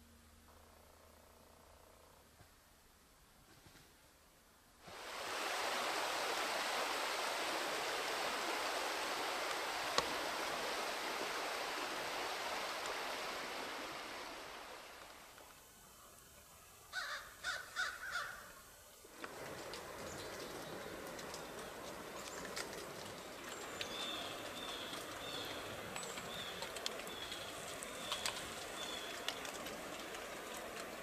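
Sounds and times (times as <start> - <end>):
stream running: 4.8 - 17.0, 19.0 - 31.0
crows cawing: 16.9 - 18.6.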